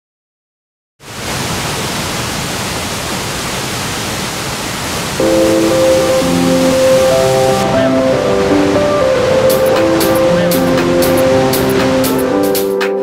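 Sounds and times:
waterfall roaring over rocks: 1.0 - 12.6
music with held notes: 5.2 - 13.0.

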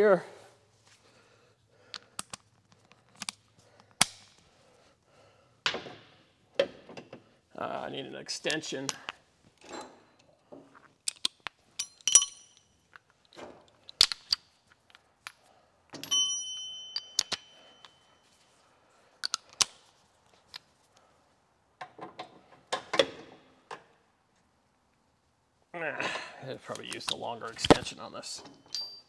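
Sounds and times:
metal tools clinking: 11.1 - 15.4, 16.0 - 18.4, 26.8 - 29.0
high metallic ring: 16.0 - 18.3.

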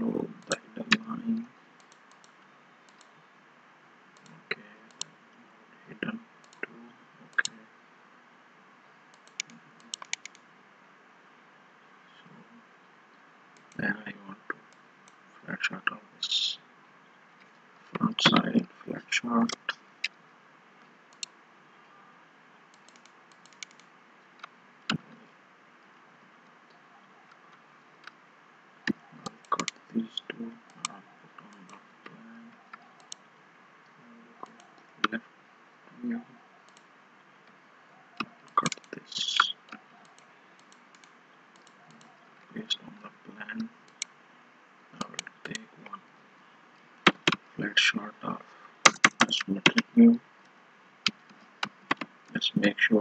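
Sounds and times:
faint hiss: 0.0 - 26.0, 29.0 - 53.0
computer keyboard and mouse clicks: 1.8 - 3.1, 9.1 - 10.4, 22.7 - 25.0, 38.2 - 38.9, 47.1 - 47.4, 48.8 - 49.8, 51.1 - 52.1.

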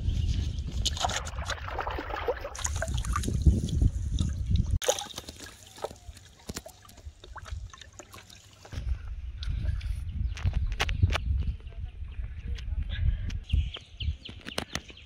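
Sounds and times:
water dripping: 0.8 - 8.7
fish splashing in basin of water: 4.2 - 8.7.

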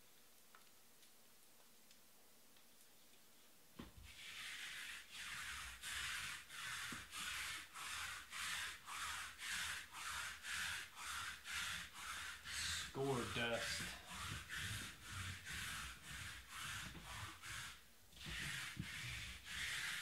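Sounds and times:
lint roller rasping on felt: 4.0 - 20.0.

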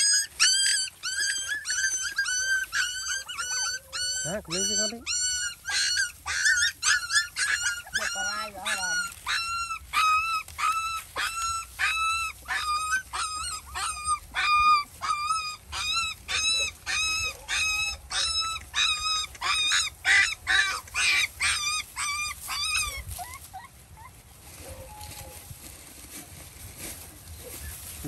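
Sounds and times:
puppies whining: 0.0 - 26.1, 27.3 - 28.0.

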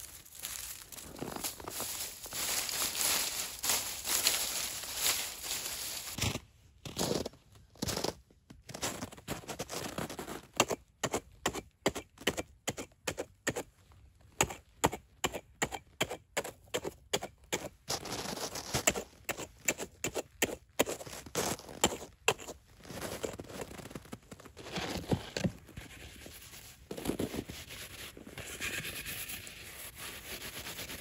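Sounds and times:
hatchet cutting into snow: 10.4 - 13.7, 14.4 - 23.5.

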